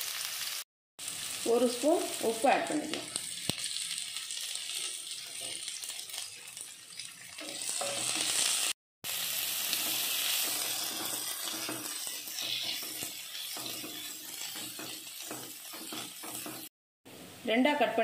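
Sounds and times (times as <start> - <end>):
onions sizzling in oil: 0.0 - 18.0
wooden spatula stirring: 10.4 - 16.7.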